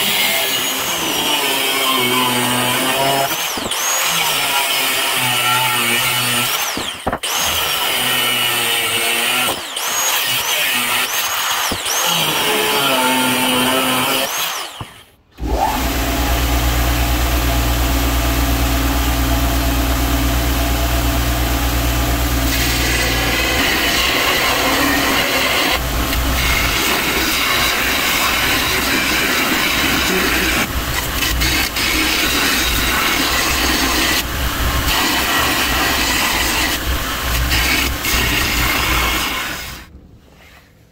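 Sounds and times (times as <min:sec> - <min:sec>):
belt grinder humming: 0:00.0 - 0:39.8
angle grinder cutting steel: 0:00.0 - 0:39.9
steel grinding on belt: 0:22.5 - 0:34.3.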